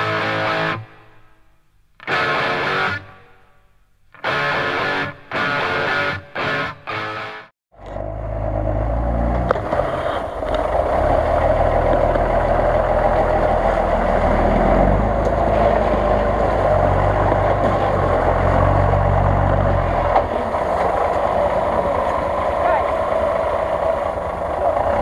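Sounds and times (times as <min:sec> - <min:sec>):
engine running under load: 0:07.7 - 0:25.0.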